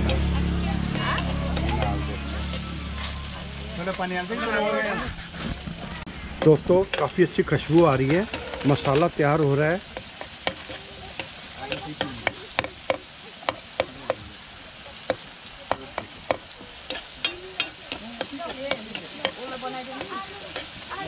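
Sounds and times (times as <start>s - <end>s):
masala sizzling in a pan: 0.0s - 21.0s
utensil knocking against pan: 15.1s - 20.6s.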